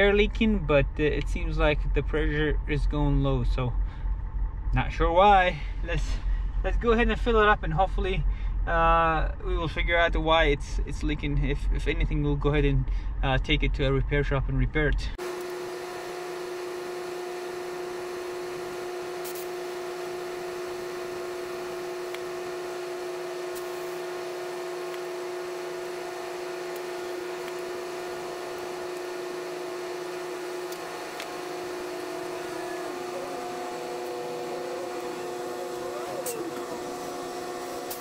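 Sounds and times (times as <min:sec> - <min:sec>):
air compressor humming: 0:15.2 - 0:38.0.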